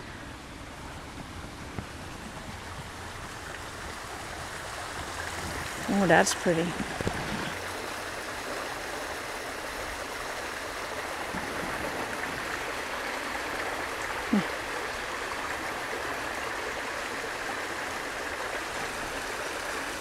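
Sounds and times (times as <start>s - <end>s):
creek water over stones: 0.0s - 20.0s.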